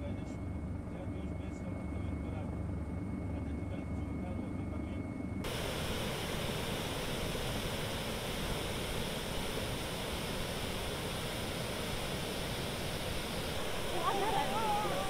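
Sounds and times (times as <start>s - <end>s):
floodwater rushing through river: 9.5s - 15.0s.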